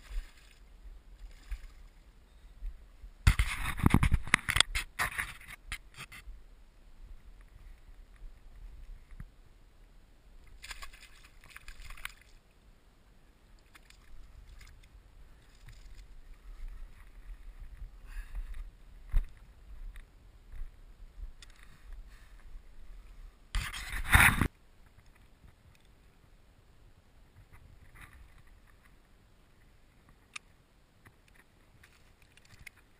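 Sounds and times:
wind rumble on microphone: 2.5 - 9.4, 14.2 - 25.6
rustles and scrapes of handling: 3.3 - 6.3, 13.7 - 20.6, 21.4 - 25.9, 27.4 - 30.3.

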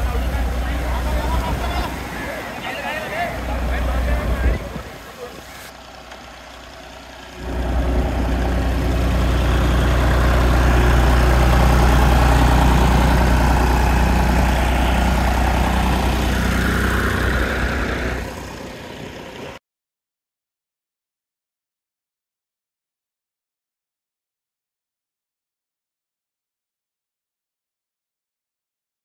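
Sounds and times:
engine humming: 0.0 - 19.6.

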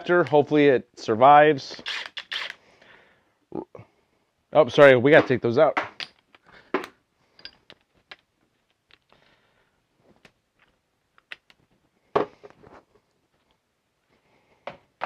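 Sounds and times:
tools clicking and knocking: 5.2 - 9.2, 10.2 - 11.6.

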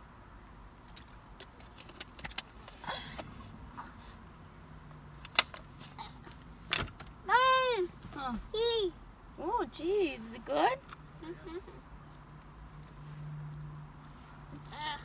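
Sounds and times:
child calling out: 7.3 - 7.9.

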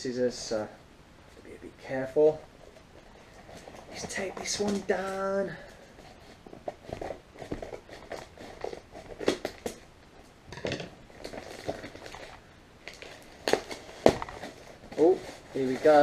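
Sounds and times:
paper rustling and crackling: 2.6 - 9.9, 11.1 - 16.0.

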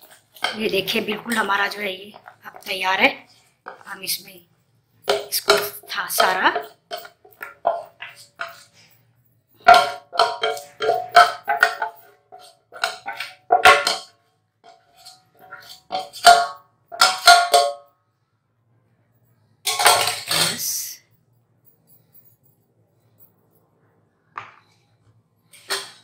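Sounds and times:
metal utensils scraping a saucepan: 5.1 - 9.0, 9.6 - 17.7.

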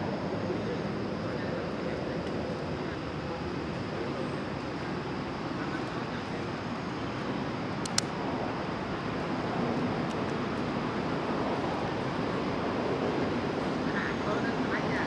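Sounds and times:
outdoor background noise: 0.0 - 15.0
sharp click: 7.8 - 8.2.

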